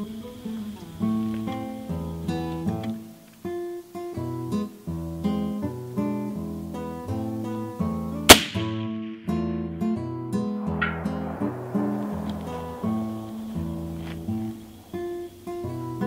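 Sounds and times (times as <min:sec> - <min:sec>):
strummed acoustic guitar: 0:00.0 - 0:11.8
loud rifle shot: 0:08.3 - 0:09.5, 0:10.5 - 0:14.9.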